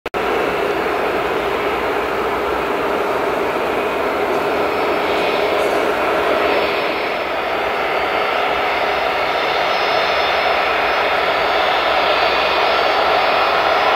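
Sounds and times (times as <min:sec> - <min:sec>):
jet engines running: 0:00.1 - 0:13.9.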